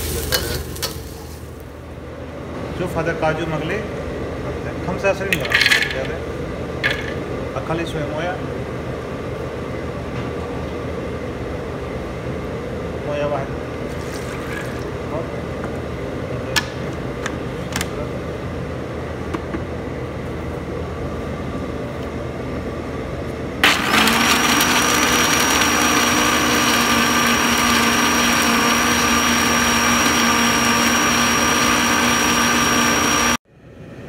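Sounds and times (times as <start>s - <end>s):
steady background hum: 0.0s - 23.6s, 33.4s - 34.0s
blender running with high whine: 23.6s - 33.4s.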